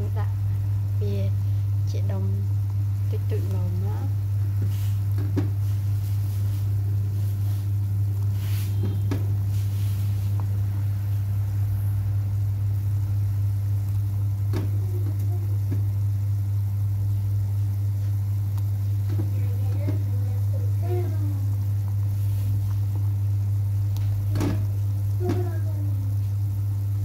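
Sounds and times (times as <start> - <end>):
loud low electrical hum: 0.0 - 27.0.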